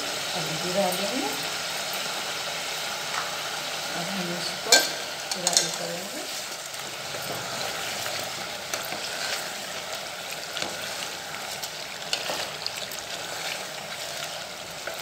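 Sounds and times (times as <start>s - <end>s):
chicken sizzling in oil: 0.0s - 15.0s
ladle scraping a pot: 10.5s - 15.0s.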